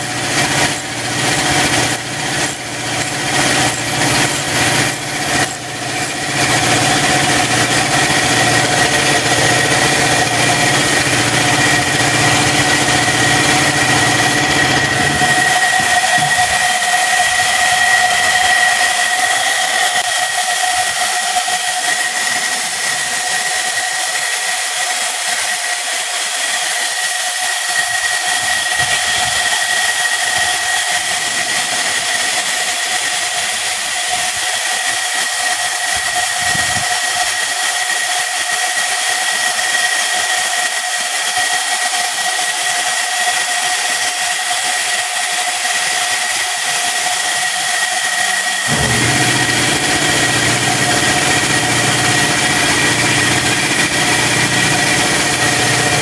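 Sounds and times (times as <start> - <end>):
low motor hum: 0.0 - 21.1, 48.7 - 56.0.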